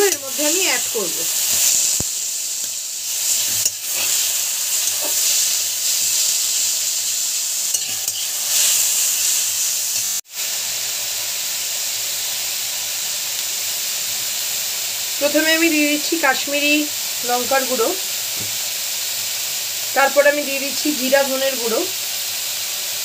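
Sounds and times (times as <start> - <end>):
food sizzling in hot oil: 0.0 - 23.0
spatula scraping a pan: 3.1 - 7.0, 7.6 - 10.1.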